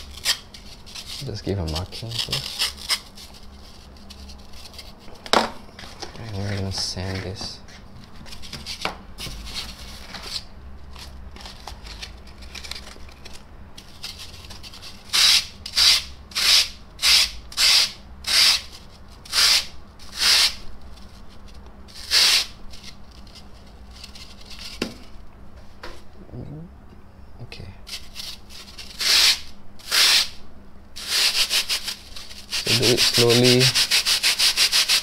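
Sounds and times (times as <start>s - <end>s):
handling scraping: 0.0s - 15.1s
sanding block on foam: 19.3s - 20.6s, 21.9s - 22.5s, 28.6s - 30.4s, 31.0s - 35.0s.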